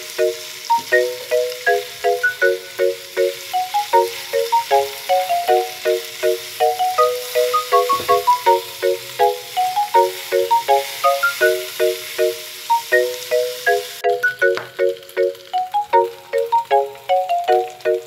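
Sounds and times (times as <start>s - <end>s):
food sizzling in a pan: 0.0s - 18.0s
bouncy tune of struck notes: 0.2s - 18.0s.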